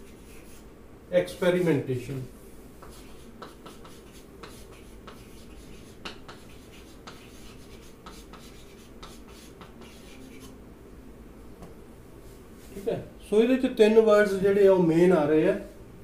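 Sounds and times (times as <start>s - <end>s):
chalk tapping and scratching: 0.0s - 0.6s, 1.2s - 10.6s.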